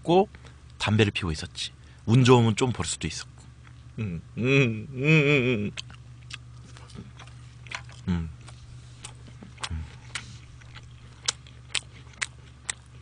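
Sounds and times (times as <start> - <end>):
steady low hum: 0.0 - 13.0
person humming low: 4.0 - 5.8, 8.0 - 8.5, 9.6 - 10.1
person chewing food: 5.7 - 13.0.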